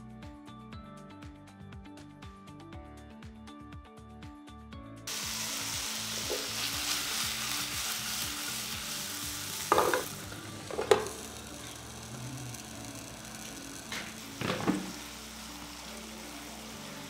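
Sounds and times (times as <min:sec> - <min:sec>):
background music: 0:00.0 - 0:17.0
meat sizzling in frying pan: 0:05.1 - 0:17.0
glass lid knocking on pan: 0:09.7 - 0:10.1, 0:10.7 - 0:11.2, 0:14.4 - 0:15.0.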